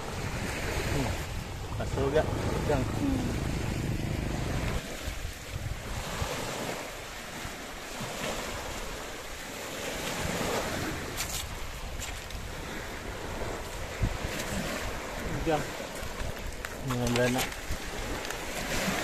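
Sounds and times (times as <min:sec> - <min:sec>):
small waves washing onto shore: 0:00.0 - 0:19.0
wind buffeting microphone: 0:00.0 - 0:19.0.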